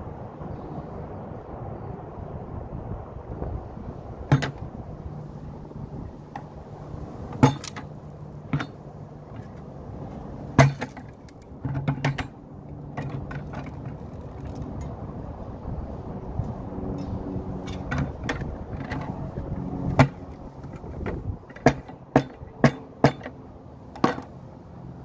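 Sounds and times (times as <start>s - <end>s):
sharp knocks and clicks: 4.3s - 4.7s, 7.3s - 9.7s, 10.6s - 14.9s, 19.9s - 24.3s.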